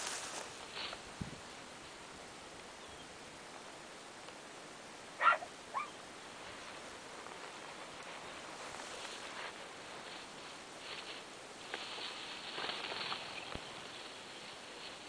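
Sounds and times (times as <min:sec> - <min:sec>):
footsteps in dry grass: 0:00.0 - 0:02.1, 0:06.2 - 0:15.0.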